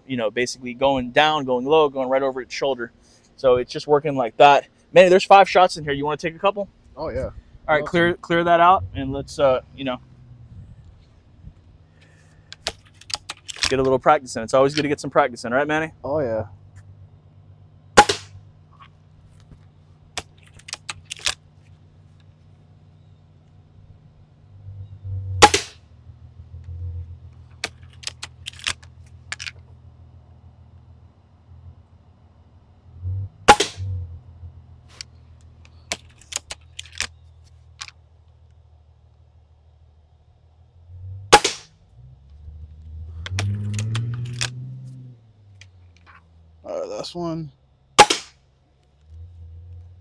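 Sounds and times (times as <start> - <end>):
low rumble: 6.9 - 12.5, 23.4 - 27.5
rifle handling clicks: 12.5 - 13.9, 20.2 - 21.4, 27.6 - 29.6, 35.0 - 37.2, 43.3 - 44.6
air rifle shot: 18.0 - 18.4, 25.4 - 25.8, 33.5 - 33.8, 41.3 - 41.7, 48.0 - 48.4.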